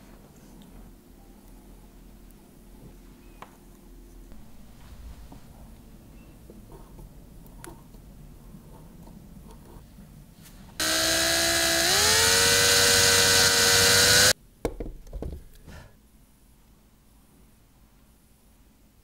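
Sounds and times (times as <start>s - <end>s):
electric drill boring into wood: 10.8s - 14.4s.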